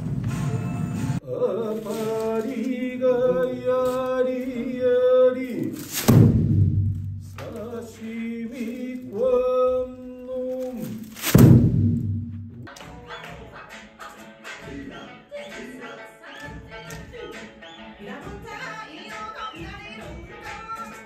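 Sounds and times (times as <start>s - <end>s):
heavy drum strikes: 6.0s - 7.4s, 11.2s - 12.7s.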